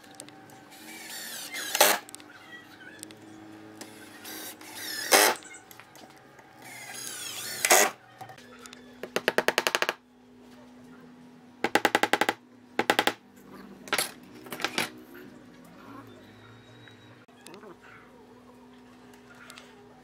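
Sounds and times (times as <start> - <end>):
drill driving screws into wood: 0.8 - 2.0, 3.9 - 5.4, 6.6 - 8.0.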